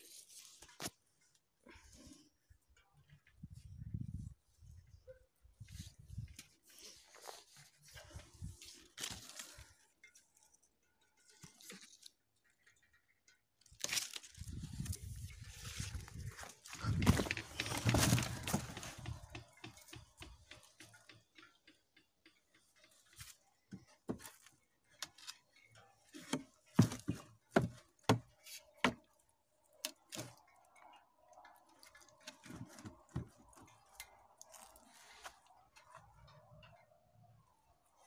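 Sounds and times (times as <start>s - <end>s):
sharp clicks and knocks: 16.9s - 24.3s.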